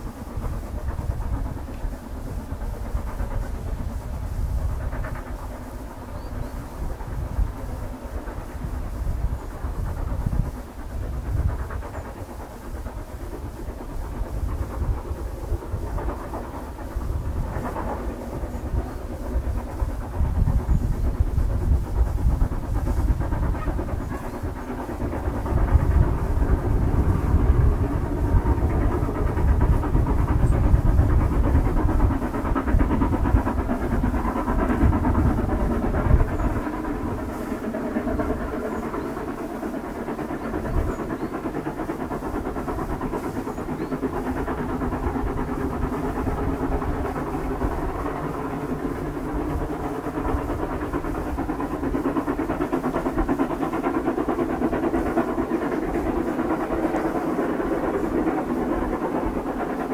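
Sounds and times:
running train noise: 0:00.0 - 0:59.9
steam locomotive exhaust: 0:00.0 - 0:59.9.

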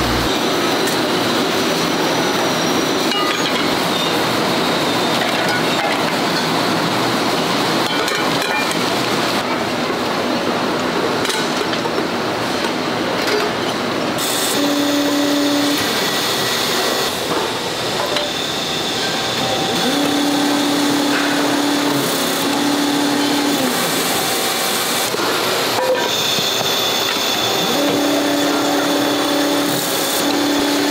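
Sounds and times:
brief low hum: 0:00.0 - 0:00.3
factory machinery noise: 0:00.0 - 0:30.9.

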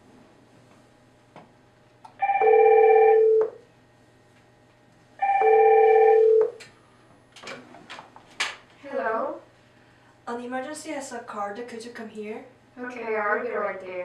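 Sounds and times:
phone ringing electronically: 0:02.2 - 0:03.6, 0:05.2 - 0:06.6.

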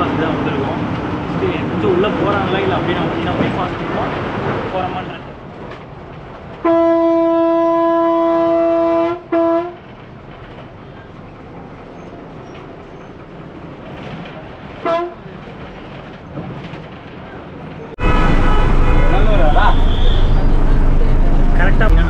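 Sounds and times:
bus horn blasts: 0:06.6 - 0:09.8, 0:14.8 - 0:15.2, 0:18.0 - 0:21.9
vehicle running noise: 0:18.0 - 0:22.0.

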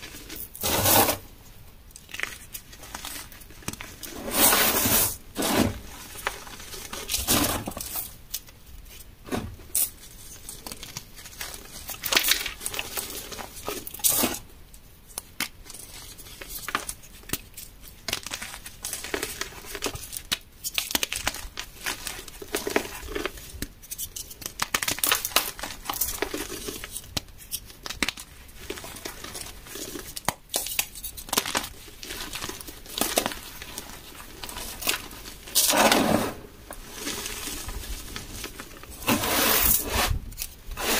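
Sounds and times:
hands crushing chalk: 0:15.1 - 0:40.9
soft gritty rustling: 0:30.9 - 0:40.9.

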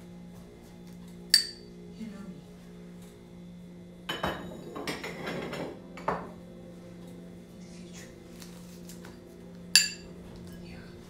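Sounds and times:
steady low hum: 0:00.0 - 0:11.0
dishes clattering and clinking: 0:04.1 - 0:06.4, 0:09.8 - 0:10.6.

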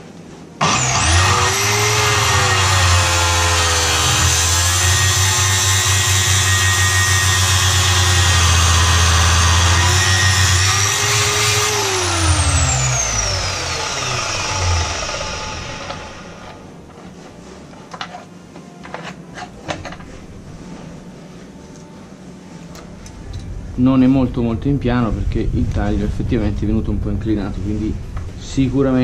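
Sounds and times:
metal cut-off saw cutting steel: 0:00.6 - 0:16.6
saw spinning down whine: 0:00.6 - 0:16.6.

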